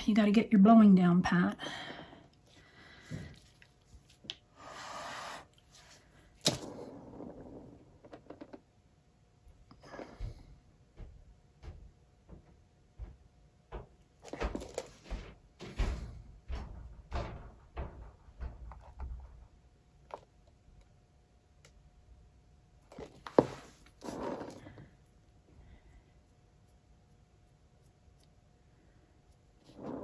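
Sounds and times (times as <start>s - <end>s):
rubbing scrapes: 23.3s - 24.7s.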